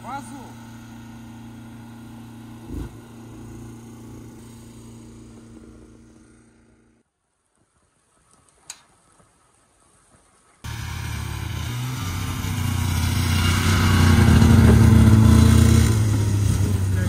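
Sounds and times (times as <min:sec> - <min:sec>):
snowmobile engine driving up: 0:00.0 - 0:07.0, 0:10.6 - 0:17.0.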